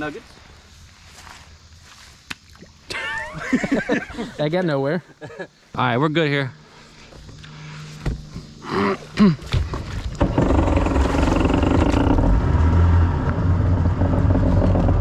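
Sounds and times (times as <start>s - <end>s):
jet ski engine revving: 6.9s - 15.0s.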